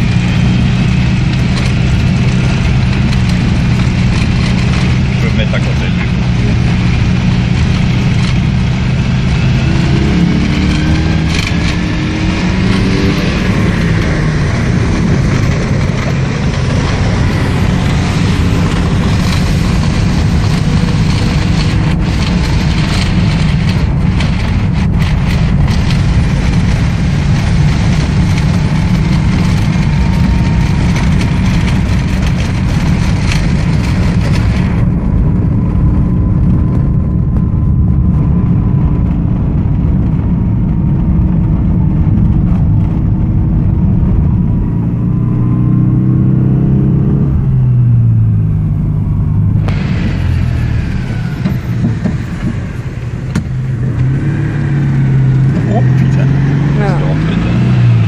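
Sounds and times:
car engine accelerating: 0.0 - 58.0
road noise: 0.0 - 58.0.

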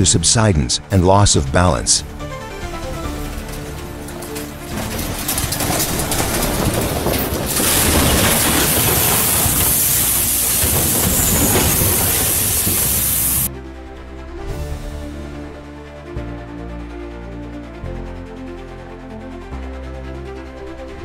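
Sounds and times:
rocks crashing down a slope: 2.7 - 13.5.

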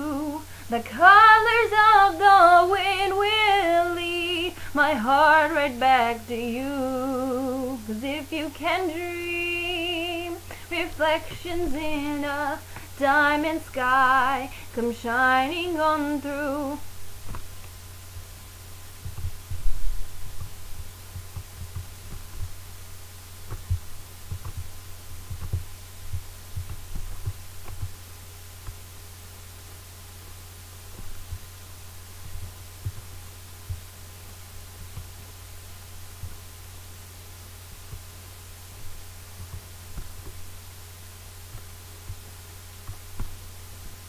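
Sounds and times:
steady low hum: 0.0 - 44.0
low thumps: 18.9 - 28.8.

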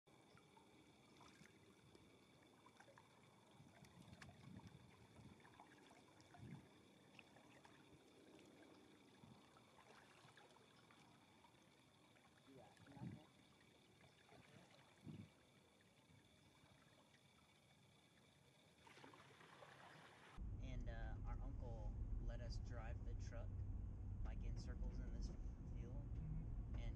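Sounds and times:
faint high hum: 0.1 - 26.9
paddle splashes: 0.5 - 15.6, 18.7 - 20.4.

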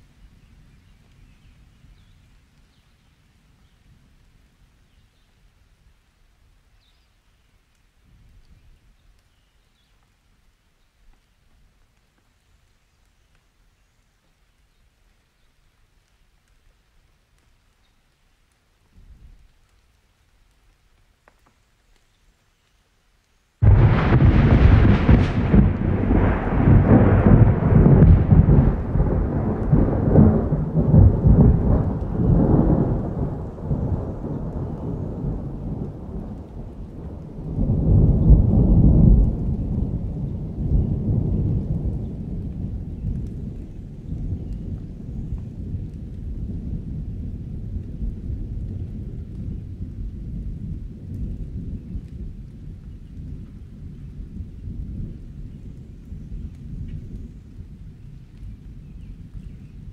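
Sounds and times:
rain: 0.0 - 59.9
thunder rolling: 23.6 - 52.7.

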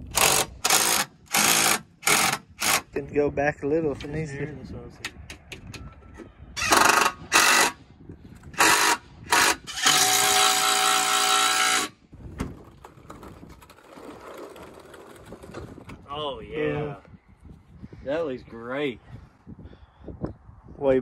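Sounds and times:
cordless drill motor whine: 6.6 - 7.8, 8.6 - 12.0.

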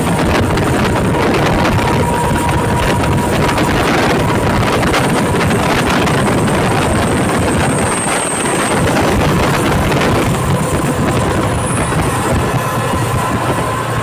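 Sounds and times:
train rumbling across bridge: 0.0 - 14.0.

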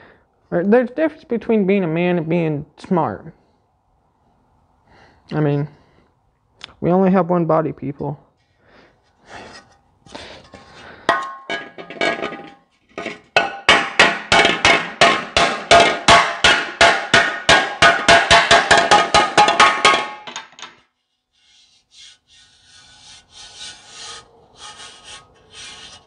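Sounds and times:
hammer striking sheet metal: 11.1 - 20.6.

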